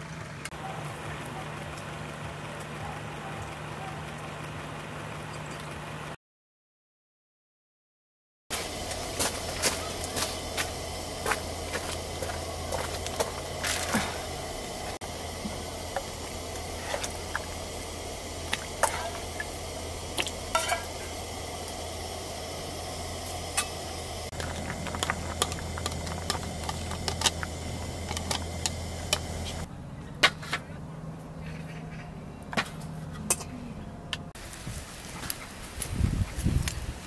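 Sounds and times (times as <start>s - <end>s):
food sizzling in a hot pan: 8.5s - 29.7s.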